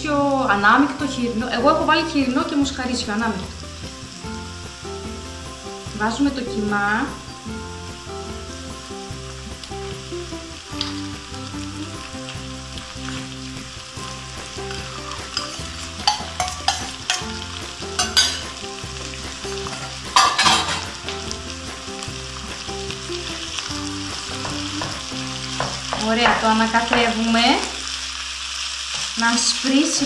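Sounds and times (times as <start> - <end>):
meat sizzling in a wok: 0.0 - 30.0
clinks and knocks of metal bowl: 18.0 - 18.5, 19.7 - 20.9.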